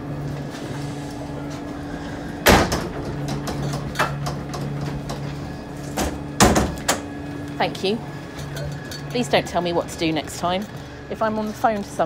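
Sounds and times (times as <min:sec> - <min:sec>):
loud knocks: 0:06.0 - 0:07.0.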